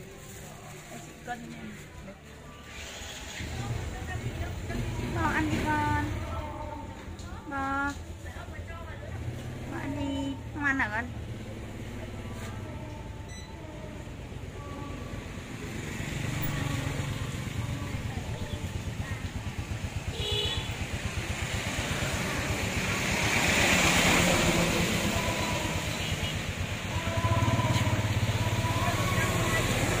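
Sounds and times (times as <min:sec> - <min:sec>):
street traffic: 0:00.0 - 0:30.0
scooter engine running: 0:02.7 - 0:07.8, 0:15.1 - 0:30.0.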